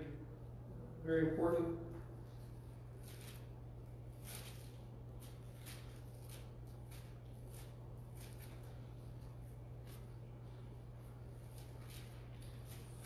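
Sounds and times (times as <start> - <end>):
steady low hum: 0.0 - 13.0
thin pages rustling: 11.4 - 13.0.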